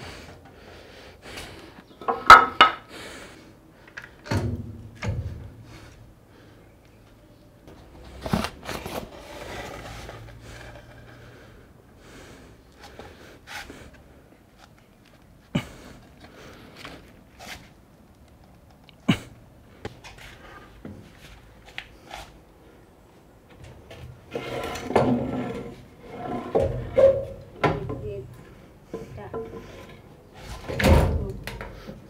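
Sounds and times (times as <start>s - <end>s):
wood scraping: 8.1s - 11.6s, 23.7s - 30.9s.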